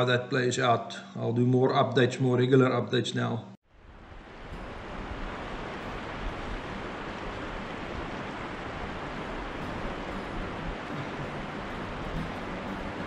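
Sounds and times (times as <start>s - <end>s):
river water rushing: 3.8s - 13.0s.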